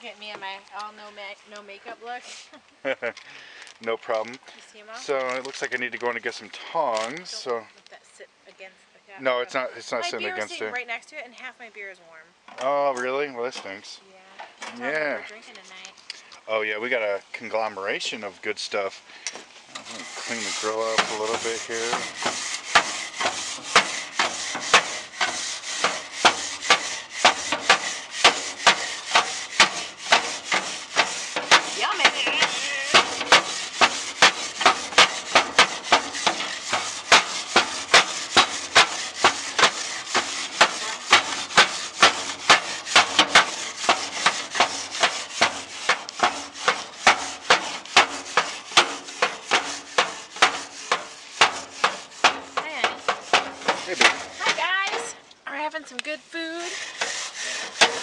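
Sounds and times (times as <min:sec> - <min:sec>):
metal grill grate being scraped: 0:12.6 - 0:14.0, 0:19.5 - 0:55.7, 0:56.4 - 0:58.0.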